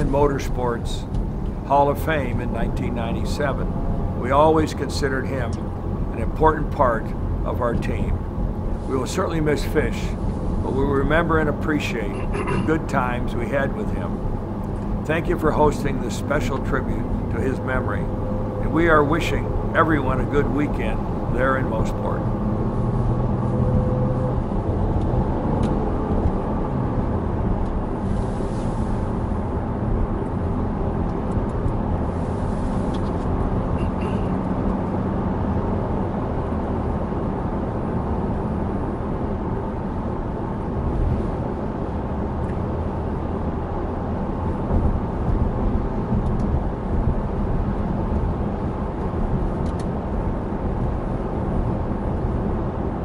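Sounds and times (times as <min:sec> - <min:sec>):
car engines droning: 0:00.0 - 0:53.0
road and tyre noise: 0:00.0 - 0:53.0.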